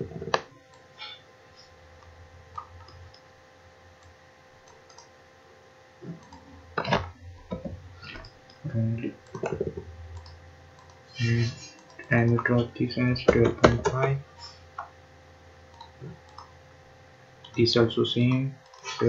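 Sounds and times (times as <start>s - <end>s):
faint steady hum: 0.0s - 19.0s
computer mouse clicking: 4.0s - 5.1s, 6.0s - 11.0s, 11.6s - 12.5s, 15.7s - 16.5s, 18.6s - 19.0s.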